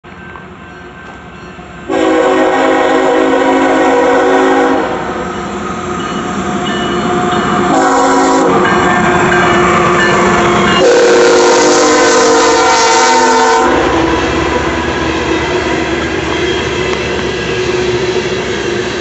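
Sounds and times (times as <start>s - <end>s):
passing train rumble: 0.0s - 19.0s
train air horn blasts: 1.9s - 5.2s, 7.6s - 8.8s, 10.6s - 14.8s.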